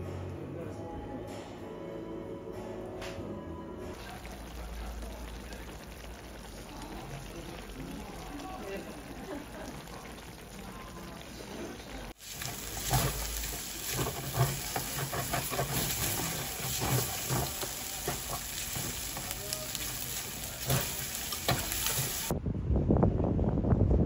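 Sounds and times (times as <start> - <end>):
rice sizzling in a pan: 4.0 - 22.3
metal spoon scraping a pan: 12.2 - 22.3
wind on microphone: 22.3 - 24.0.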